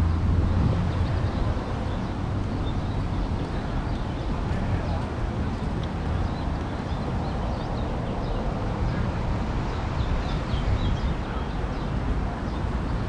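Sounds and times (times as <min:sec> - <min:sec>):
low street rumble: 0:00.0 - 0:13.0.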